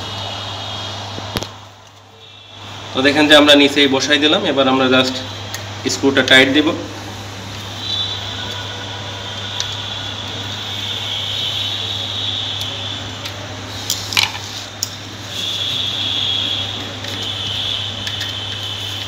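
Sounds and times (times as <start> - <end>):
steady hum and hiss: 0.0 - 19.0.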